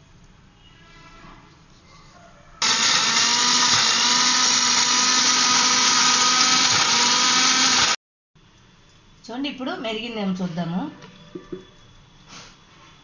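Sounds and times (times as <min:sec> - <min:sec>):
mixer grinder whining: 0:02.6 - 0:08.0.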